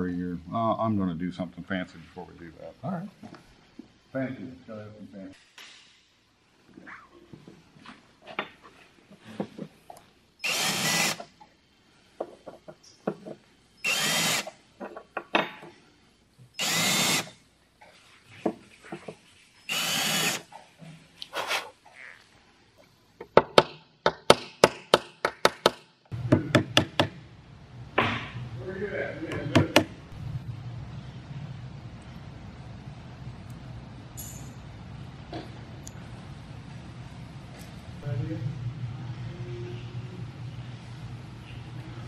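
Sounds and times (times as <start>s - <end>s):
cordless drill running: 10.4s - 11.3s, 13.8s - 14.5s, 16.6s - 17.3s, 19.7s - 20.4s.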